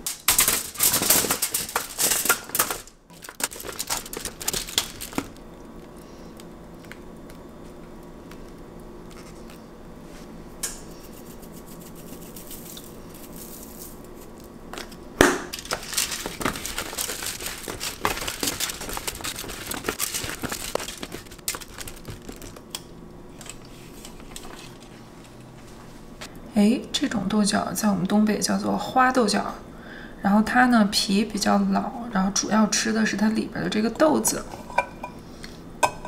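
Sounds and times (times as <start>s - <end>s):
plastic bag crinkling: 0.0s - 6.0s, 11.5s - 14.5s, 15.5s - 22.8s.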